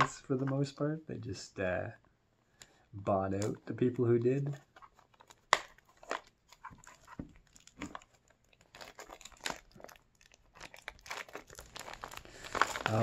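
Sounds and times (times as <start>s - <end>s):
shrink-wrap crinkling: 3.4s - 13.0s.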